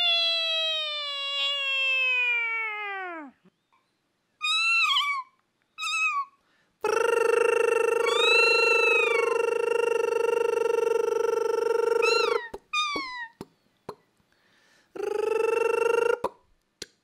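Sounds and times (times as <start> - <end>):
person voicing cat yowl and meows: 0.0 - 3.4, 4.4 - 13.4, 15.0 - 16.3
rising and falling tone: 6.8 - 12.4
steady held tone: 6.8 - 12.4.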